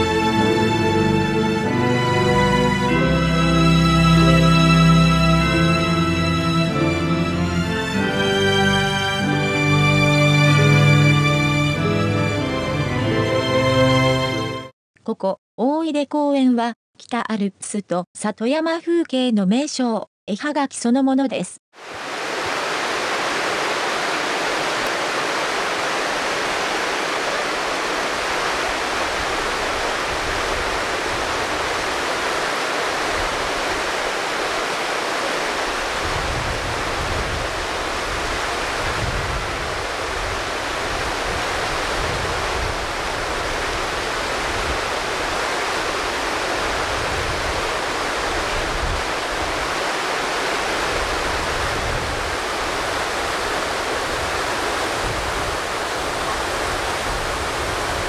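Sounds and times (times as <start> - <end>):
stream water rushing: 0.0 - 14.6, 21.8 - 58.0.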